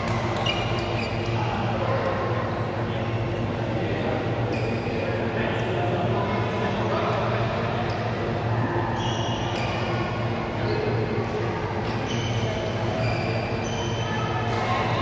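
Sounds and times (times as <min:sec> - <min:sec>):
shoes squeaking on court floor: 0:00.1 - 0:01.4, 0:09.0 - 0:11.0.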